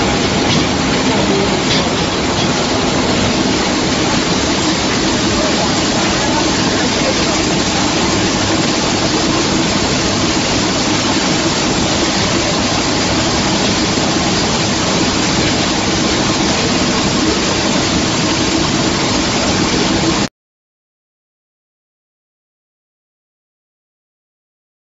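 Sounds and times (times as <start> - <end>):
dryer fan air rush: 0.0 - 20.3
steady machine hum: 0.0 - 20.3.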